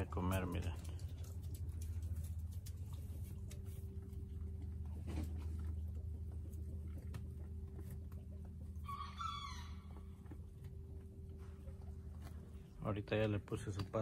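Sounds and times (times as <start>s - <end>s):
low hum: 0.0s - 14.0s
chicken calling: 8.8s - 10.5s.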